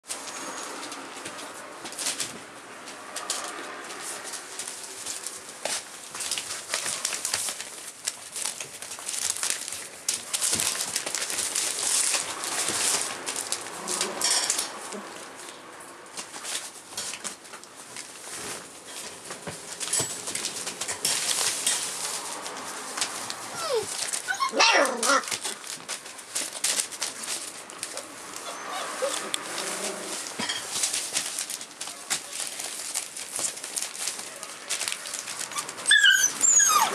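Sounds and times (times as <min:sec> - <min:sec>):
newspaper crinkling: 0:00.1 - 0:36.9
puppy sounds: 0:10.3 - 0:15.6, 0:23.1 - 0:31.0, 0:34.0 - 0:36.9
puppies whining: 0:23.4 - 0:25.5, 0:27.8 - 0:30.3, 0:35.4 - 0:36.9.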